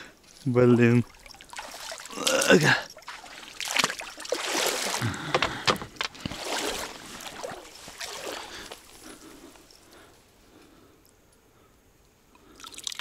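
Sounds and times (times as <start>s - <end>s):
water splashing and sloshing: 0.0s - 10.0s.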